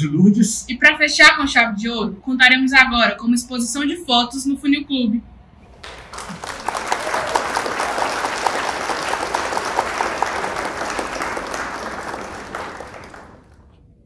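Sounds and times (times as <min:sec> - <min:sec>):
many hands clapping: 0:05.7 - 0:13.7.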